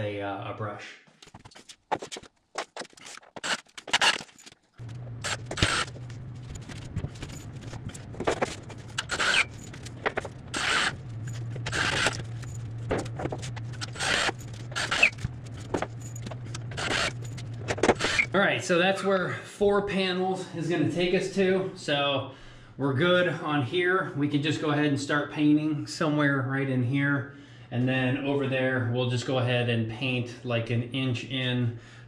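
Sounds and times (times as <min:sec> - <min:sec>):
low hum: 0:03.4 - 0:18.8.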